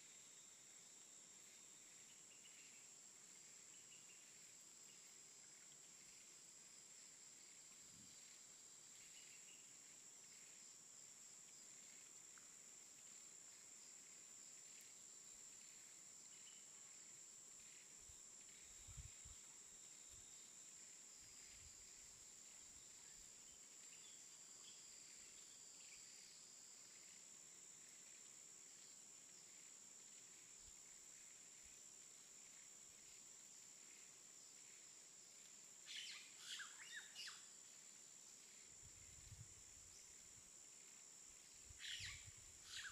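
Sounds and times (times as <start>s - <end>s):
insects droning: 0.0s - 42.9s
soft bird chirps: 41.8s - 42.9s.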